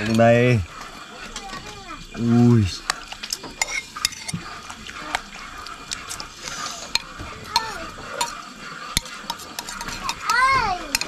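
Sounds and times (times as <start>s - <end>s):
metal spoon scraping ceramic bowl: 2.9s - 4.4s, 6.8s - 11.0s.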